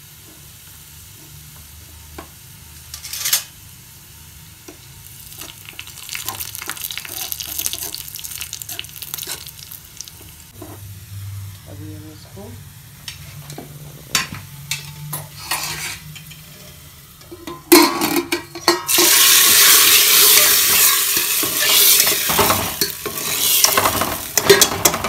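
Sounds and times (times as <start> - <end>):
hot oil sizzling: 0.0 - 25.0
spatula stirring: 5.3 - 10.8, 19.8 - 24.9.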